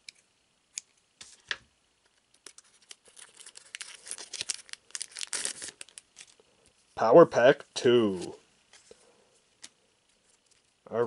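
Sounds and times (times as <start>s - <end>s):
foil wrapper crinkling: 2.3s - 6.5s.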